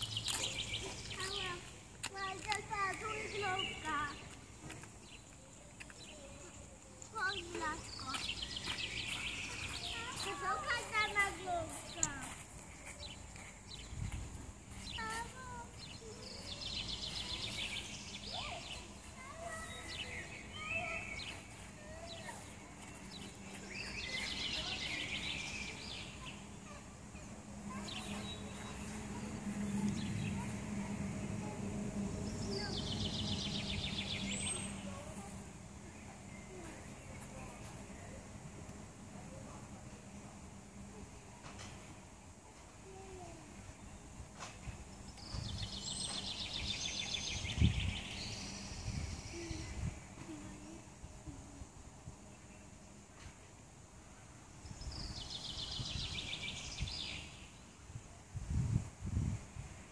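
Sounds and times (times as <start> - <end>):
fast twittering birdsong: 0.0 - 38.2, 44.9 - 50.2, 54.2 - 57.8
songbirds chirping: 0.0 - 58.1
outdoor background noise: 0.0 - 59.9.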